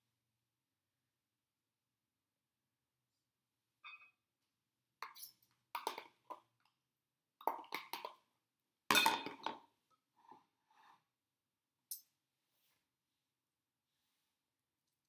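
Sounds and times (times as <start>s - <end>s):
spoon clinking on ceramic bowl: 8.9s - 9.5s.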